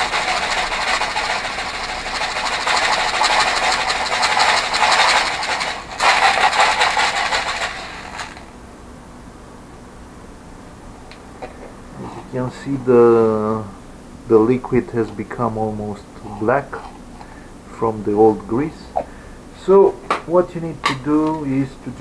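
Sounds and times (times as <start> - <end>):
ball bearings rattling in plastic cup: 0.0 - 8.5.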